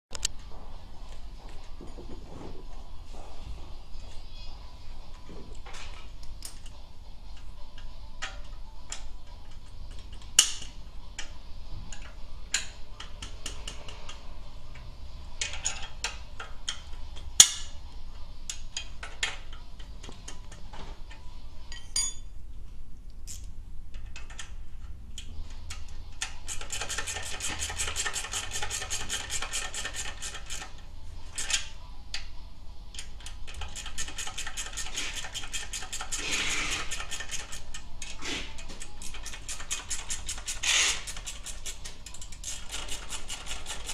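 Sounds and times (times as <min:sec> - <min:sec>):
wrench clicks and taps on metal: 0:07.4 - 0:11.3, 0:11.9 - 0:14.2, 0:15.4 - 0:17.7, 0:18.5 - 0:20.6, 0:23.3 - 0:30.7, 0:32.9 - 0:36.2, 0:36.8 - 0:38.2, 0:38.8 - 0:43.9
rapid ratchet clicking: 0:25.6 - 0:31.7, 0:33.0 - 0:43.9.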